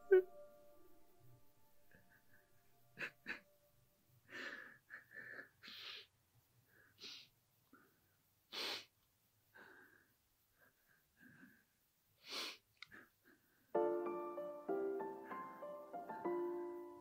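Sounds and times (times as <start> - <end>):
man sobbing and sniffling: 4.2 - 6.1.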